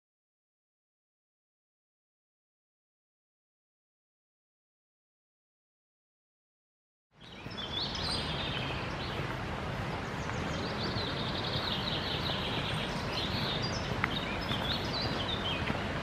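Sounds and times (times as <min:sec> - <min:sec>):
songbirds singing and chirping: 0:07.1 - 0:16.0
steady rushing noise: 0:07.4 - 0:16.0.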